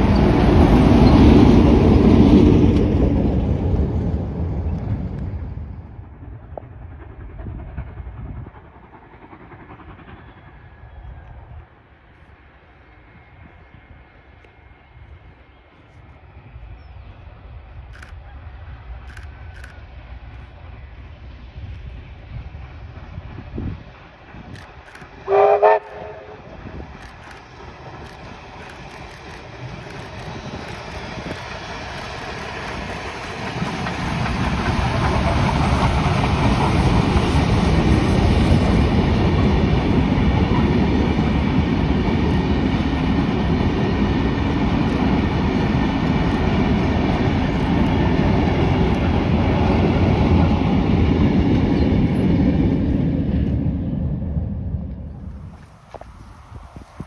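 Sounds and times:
train wheel clatter: 0.0 - 11.7, 21.6 - 53.6
train rumbling past: 0.0 - 57.0
steam locomotive whistle: 25.2 - 26.5.

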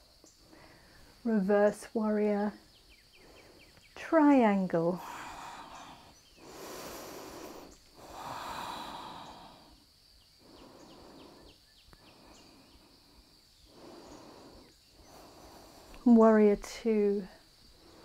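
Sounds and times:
person breathing slowly: 0.4 - 1.2, 3.0 - 3.9, 5.0 - 16.1, 17.4 - 18.0.

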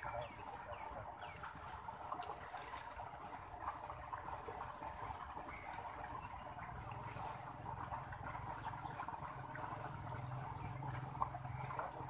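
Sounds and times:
water flowing along furrow: 0.0 - 12.0.

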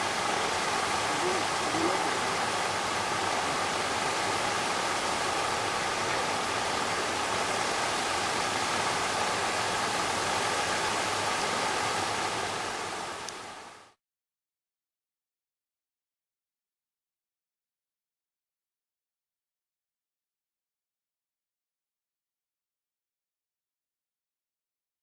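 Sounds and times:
paddles churning water: 0.0 - 13.2.

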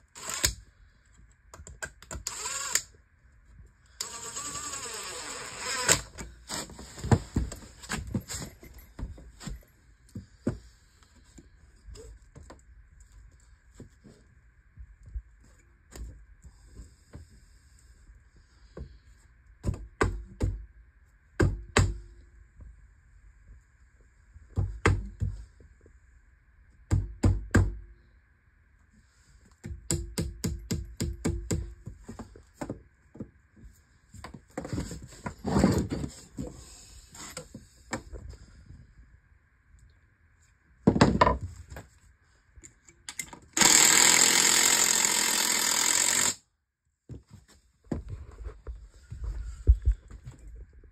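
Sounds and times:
impact driver whirring: 4.0 - 6.2, 43.6 - 46.4.

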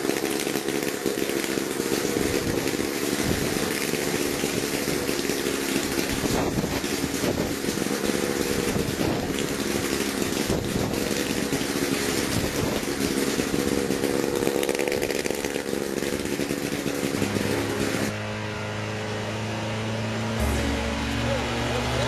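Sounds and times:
helicopter engine running: 0.0 - 22.0.

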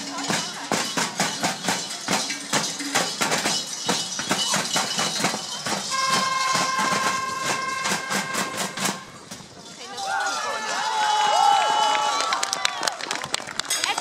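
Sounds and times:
large bells clanging: 0.0 - 10.9
steady ringing tone: 0.1 - 9.3.

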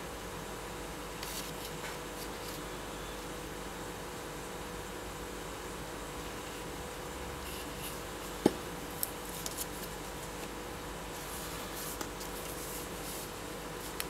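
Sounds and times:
steady low hum: 0.0 - 14.0
soft rustles: 9.0 - 14.0.

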